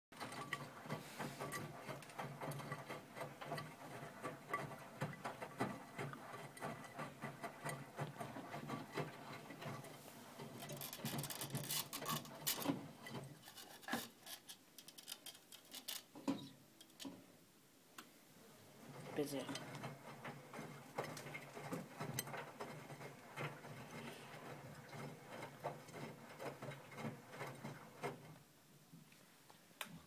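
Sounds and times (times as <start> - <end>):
washing machine drum motor hum: 0.1 - 13.5, 18.7 - 28.5
small clicks and knocks: 0.2 - 17.3
laundry tumbling and splashing: 18.6 - 28.4.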